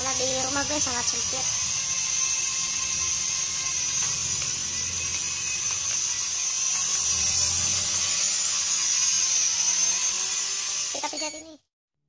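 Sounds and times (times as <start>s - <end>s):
toy drone whining: 0.0s - 11.7s.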